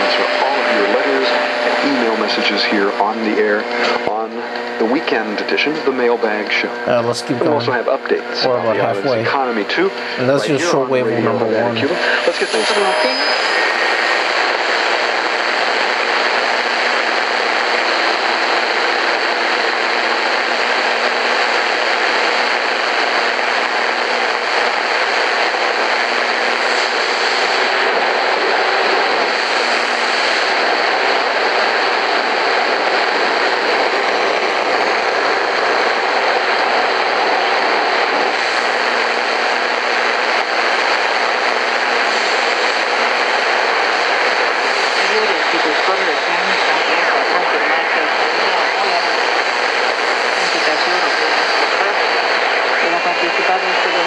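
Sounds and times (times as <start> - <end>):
faint steady hum tones: 0.0 - 54.0
radio shortwave static: 0.0 - 54.0.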